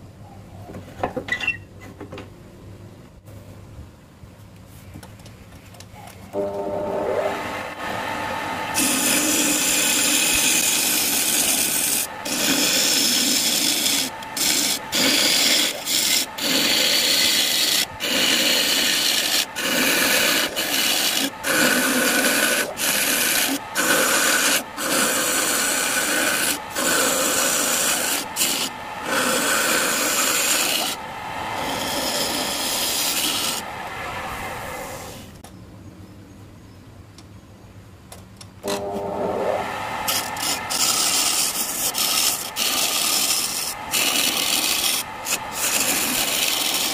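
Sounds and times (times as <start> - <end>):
lathe running: 6.4 - 35.2, 38.6 - 46.9
gouge scraping wooden bowl: 8.8 - 31.0, 31.6 - 33.7, 40.1 - 46.9.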